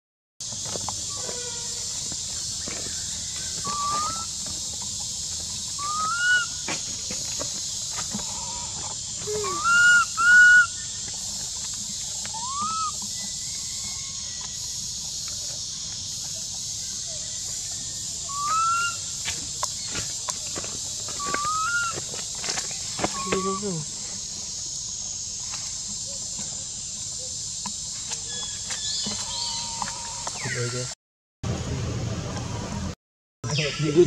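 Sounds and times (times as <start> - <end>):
insects droning: 0.4 - 34.0
monkey coo calls: 3.6 - 4.4, 5.8 - 6.6, 8.2 - 10.9, 12.3 - 13.0, 18.2 - 19.0, 21.2 - 22.0, 23.1 - 23.8.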